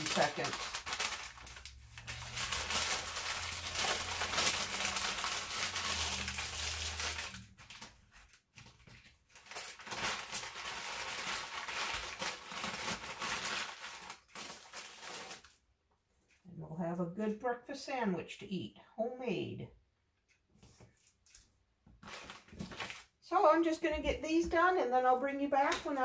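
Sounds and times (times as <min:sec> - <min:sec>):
parchment paper crinkling: 0:00.0 - 0:15.6, 0:20.6 - 0:23.6, 0:25.6 - 0:26.0
plastic bag rustling: 0:00.0 - 0:15.6, 0:22.0 - 0:23.2.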